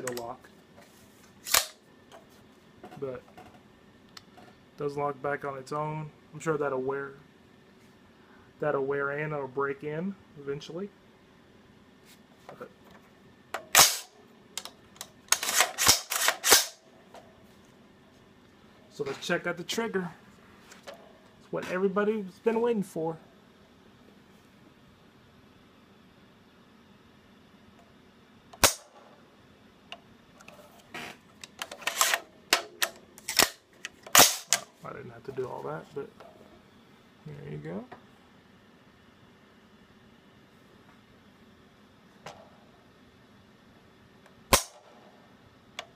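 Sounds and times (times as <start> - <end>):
rifle action metallic clacks: 1.4 - 1.8, 13.6 - 16.8, 31.5 - 34.7.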